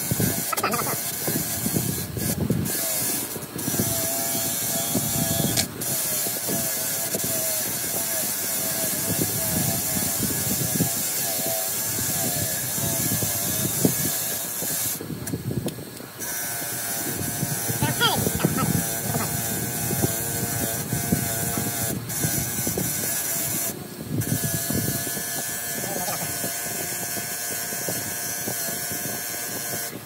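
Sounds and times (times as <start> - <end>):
bench grinder grinding metal: 0.0 - 15.4, 16.0 - 30.0.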